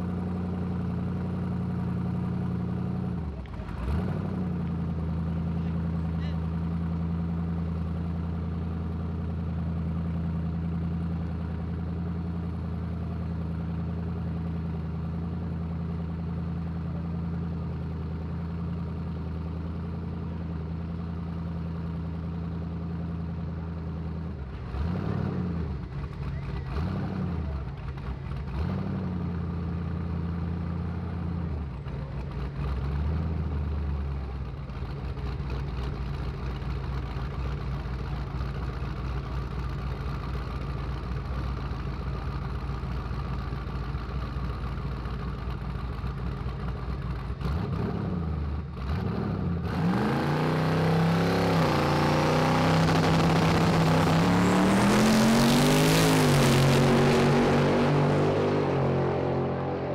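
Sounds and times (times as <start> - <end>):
race car engines idling: 0.0 - 49.0
engine revving blips: 48.8 - 59.9.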